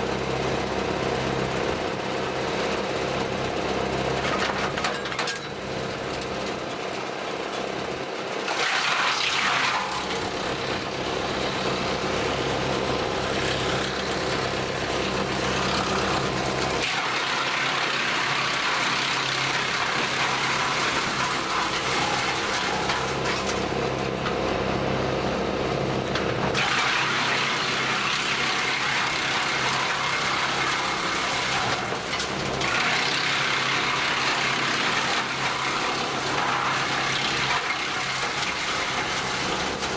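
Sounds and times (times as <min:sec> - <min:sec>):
wood chipper shredding branches: 0:00.0 - 0:39.9
tractor engine humming: 0:10.0 - 0:16.8, 0:20.9 - 0:26.6.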